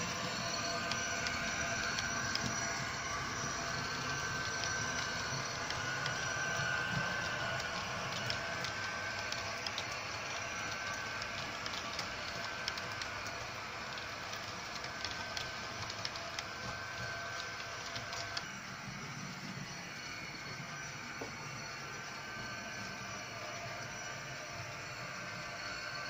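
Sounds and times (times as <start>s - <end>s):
model train wheels rattling on track: 0.0s - 18.5s.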